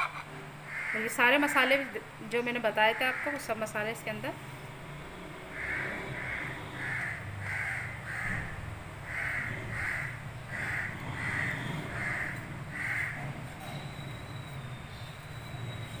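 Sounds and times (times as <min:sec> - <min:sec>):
crow cawing: 0:00.7 - 0:01.7, 0:02.9 - 0:03.5, 0:05.5 - 0:13.2.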